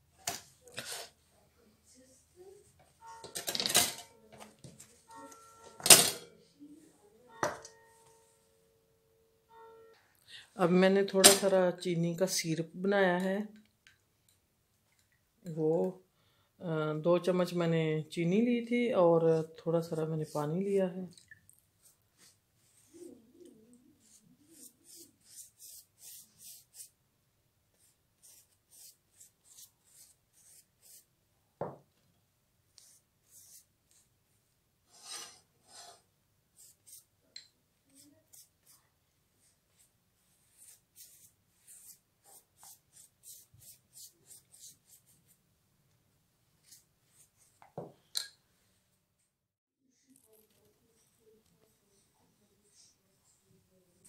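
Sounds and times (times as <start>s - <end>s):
faint scratching brush strokes: 21.8s - 27.0s, 27.7s - 31.1s, 32.8s - 34.1s, 34.8s - 37.1s, 37.8s - 45.4s, 46.6s - 47.6s.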